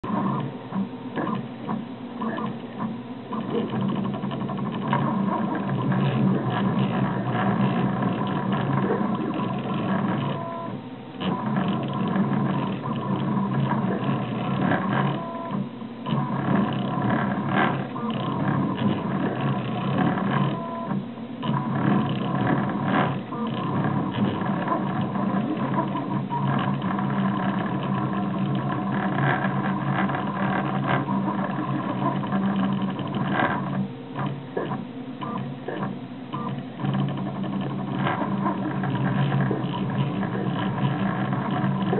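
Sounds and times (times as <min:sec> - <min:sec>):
printer stepper motors whining: 0:00.0 - 0:41.9.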